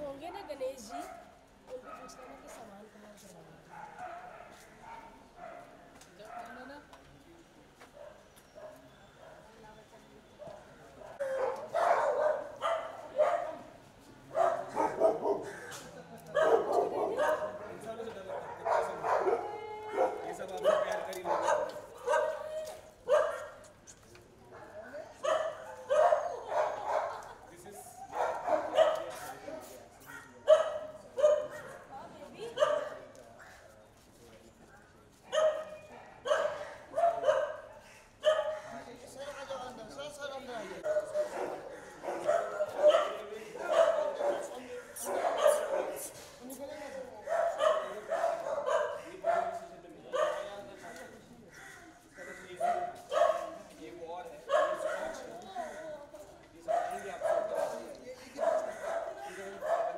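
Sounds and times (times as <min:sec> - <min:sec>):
dog barking: 0:00.4 - 0:02.6, 0:03.7 - 0:06.6, 0:08.0 - 0:09.5, 0:10.4 - 0:13.7, 0:14.3 - 0:15.7, 0:16.3 - 0:23.7, 0:24.6 - 0:27.3, 0:28.0 - 0:33.1, 0:34.7 - 0:38.8, 0:40.8 - 0:46.1, 0:47.2 - 0:50.9, 0:52.6 - 0:53.8, 0:54.4 - 0:55.8, 0:56.6 - 0:59.9.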